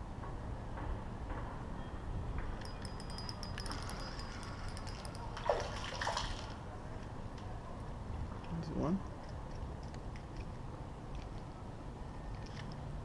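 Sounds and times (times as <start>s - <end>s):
fishing reel ticking: 2.6s - 5.4s.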